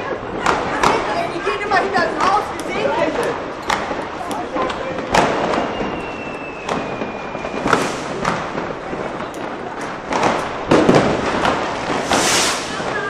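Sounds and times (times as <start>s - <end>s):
firecracker crackle: 0.0s - 13.0s
firework bangs: 0.0s - 13.0s
firework whistle: 5.2s - 8.4s, 11.8s - 13.0s.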